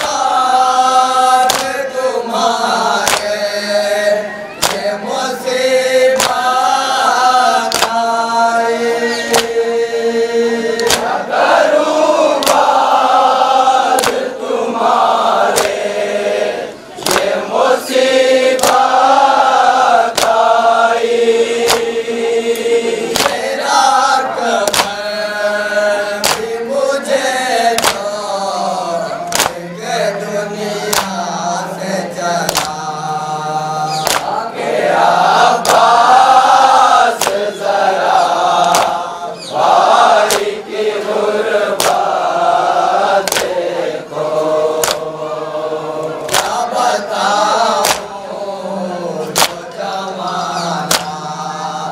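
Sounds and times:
men chanting: 0.0 - 51.9
hands slapping chests: 1.4 - 1.8, 2.9 - 3.4, 4.5 - 5.0, 6.1 - 6.6, 7.6 - 8.1, 9.3 - 9.6, 10.8 - 11.2, 12.4 - 13.0, 13.9 - 14.4, 15.5 - 15.9, 17.0 - 17.4, 18.5 - 19.0, 20.1 - 20.5, 21.6 - 23.6, 24.6 - 25.1, 26.2 - 26.6, 27.7 - 28.1, 29.3 - 29.6, 30.9 - 31.2, 32.4 - 32.8, 34.0 - 34.4, 35.6 - 36.1, 37.1 - 37.5, 38.5 - 39.1, 39.9 - 40.7, 41.7 - 42.2, 43.2 - 43.7, 44.7 - 45.2, 46.0 - 46.7, 47.8 - 48.2, 49.2 - 49.7, 50.8 - 51.2.

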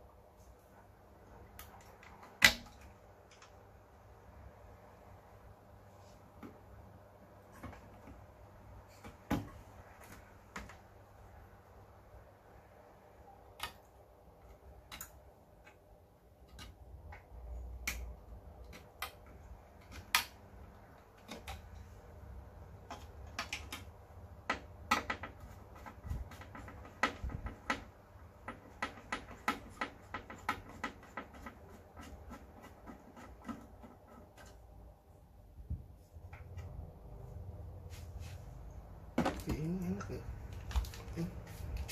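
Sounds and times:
screwdriver clicks and taps: 14.5 - 15.8, 22.9 - 34.6.

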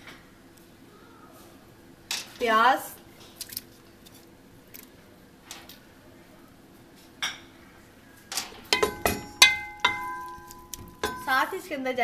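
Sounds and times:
spoon knocking metal pot: 8.7 - 11.5.

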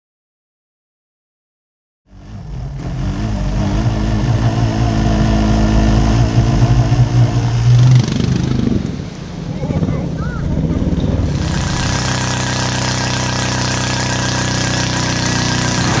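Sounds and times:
go-kart engine running: 2.1 - 9.0, 9.8 - 16.0.

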